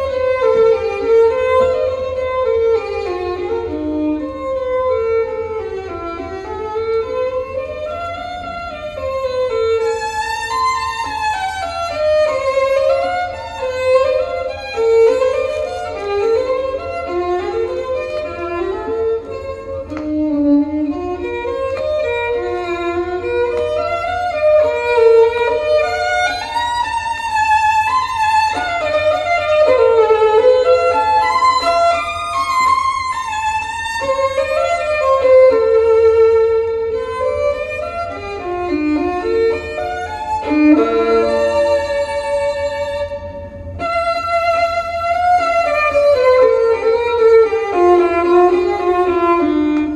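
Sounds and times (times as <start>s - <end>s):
violin melody from loudspeakers: 0.0s - 49.9s.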